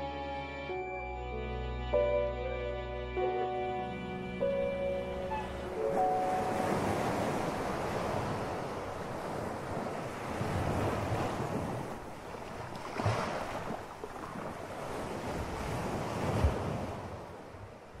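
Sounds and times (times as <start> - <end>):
waves breaking on beach: 5.3 - 18.0
wind on microphone: 5.3 - 18.0.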